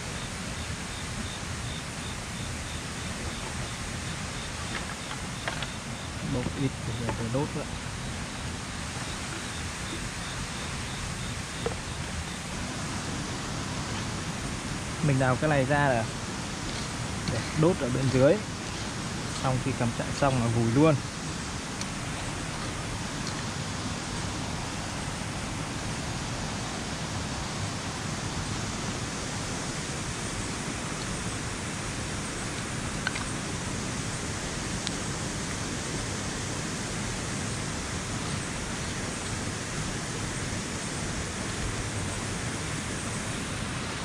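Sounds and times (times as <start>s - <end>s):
waterfall rushing: 0.0s - 44.0s.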